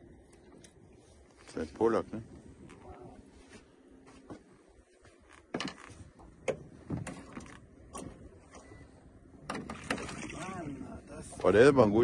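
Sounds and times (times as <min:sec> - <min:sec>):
knocks on small boat: 0:06.4 - 0:08.2.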